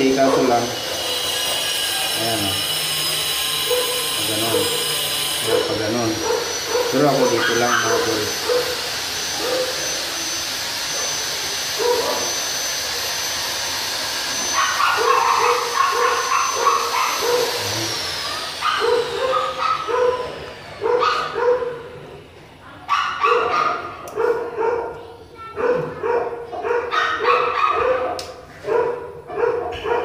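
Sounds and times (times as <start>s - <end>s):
dog barking: 3.7s - 4.0s, 5.4s - 8.8s, 11.8s - 12.3s, 14.6s - 17.6s, 18.6s - 21.9s, 22.8s - 30.0s.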